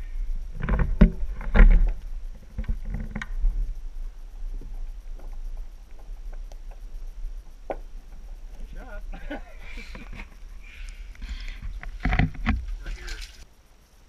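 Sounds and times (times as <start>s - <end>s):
muffled underwater knocks and thumps: 11.2s - 12.8s.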